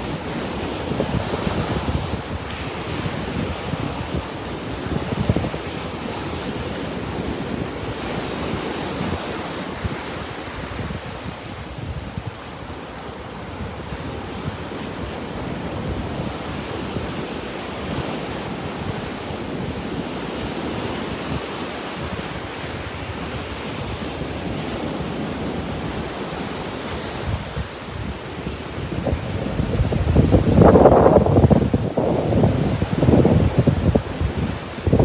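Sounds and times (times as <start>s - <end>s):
surf washing up beach: 0.0s - 35.0s
wind buffeting microphone: 0.0s - 35.0s.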